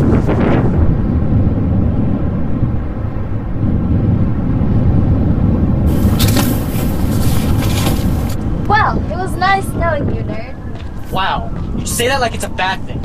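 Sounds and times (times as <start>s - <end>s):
wind buffeting microphone: 0.0s - 13.0s
rustling hiss: 5.9s - 8.4s.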